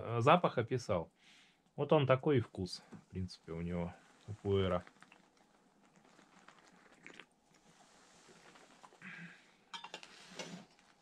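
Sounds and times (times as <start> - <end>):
tea being sipped: 4.0 - 11.0
crockery clinking: 9.7 - 10.5.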